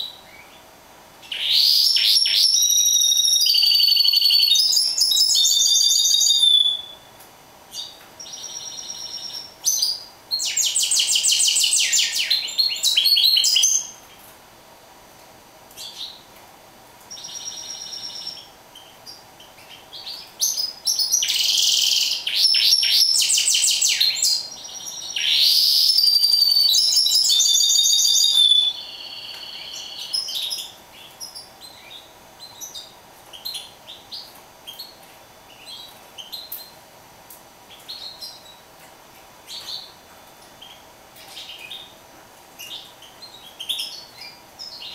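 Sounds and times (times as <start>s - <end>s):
faint steady hum: 0.0s - 44.9s
finch singing trills and chirps: 1.2s - 7.1s, 7.7s - 14.0s, 17.1s - 36.8s, 37.7s - 38.6s, 39.5s - 40.0s, 42.6s - 44.9s.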